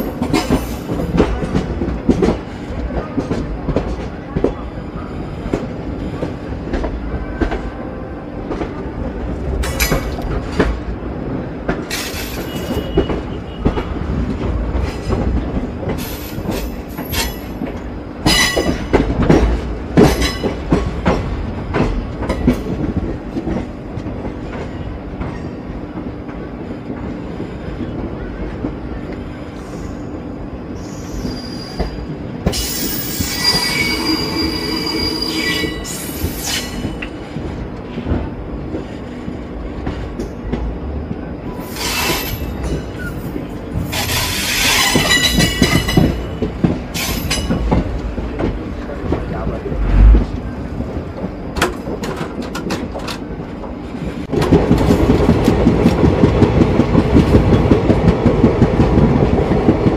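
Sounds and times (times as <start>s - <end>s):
train rumbling on track: 0.0s - 59.9s
high wheel squeal: 30.8s - 32.0s, 32.6s - 36.9s.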